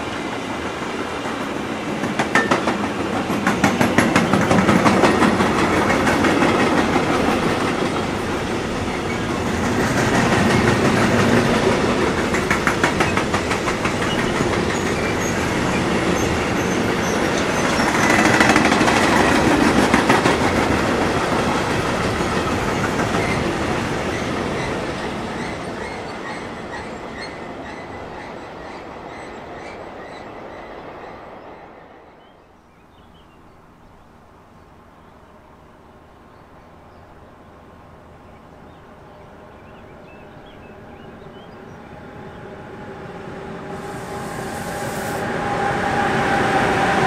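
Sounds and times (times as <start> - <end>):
train wheels clattering on rails: 0.0 - 30.3
high wheel squeal: 43.7 - 47.0.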